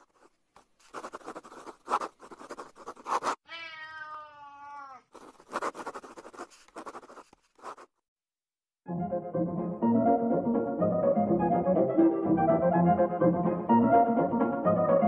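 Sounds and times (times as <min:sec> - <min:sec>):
marker scribbling on paper: 0:00.0 - 0:03.4, 0:05.1 - 0:08.0
cat meowing: 0:03.4 - 0:05.1.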